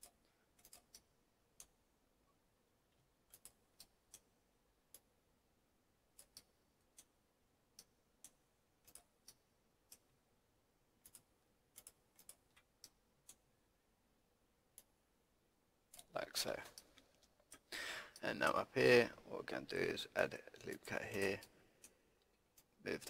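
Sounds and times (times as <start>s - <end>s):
computer mouse clicks: 0.0s - 1.8s, 3.2s - 4.3s, 6.1s - 7.1s, 7.7s - 10.1s, 11.0s - 13.4s.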